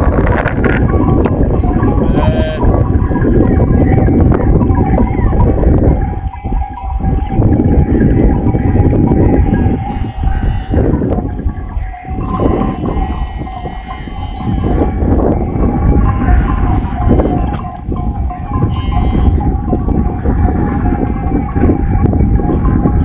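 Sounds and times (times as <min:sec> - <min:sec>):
bell clanking: 0:00.0 - 0:23.0
sheep bleating: 0:01.8 - 0:02.8, 0:09.4 - 0:11.2, 0:12.1 - 0:15.2, 0:15.9 - 0:17.6, 0:18.6 - 0:19.4.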